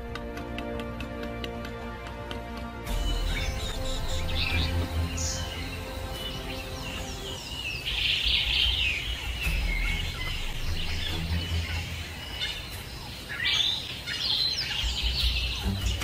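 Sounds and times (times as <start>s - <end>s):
high-pitched chirping calls: 2.9s - 16.0s
low rumble: 8.4s - 13.0s.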